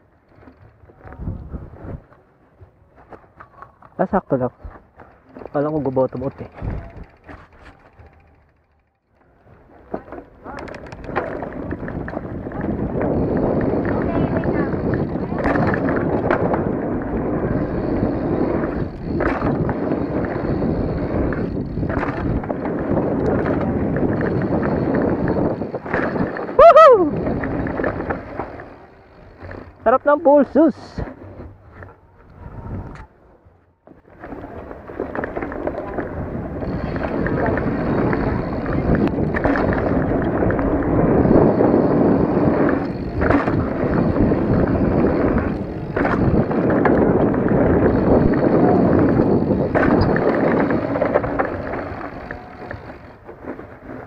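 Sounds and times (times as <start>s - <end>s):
bike rattle: 0.0s - 33.2s, 33.8s - 54.0s
bike tyre noise: 0.0s - 54.0s
wind rush on microphone: 0.9s - 2.2s, 6.2s - 7.6s, 10.5s - 29.8s, 30.6s - 54.0s
bike knocking over bumps: 9.8s - 26.5s, 33.9s - 54.0s.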